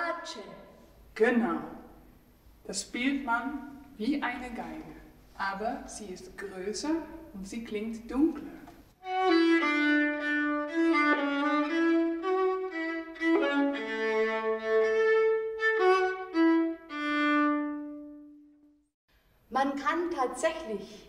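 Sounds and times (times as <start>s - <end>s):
bowed string melody: 9.0s - 18.5s.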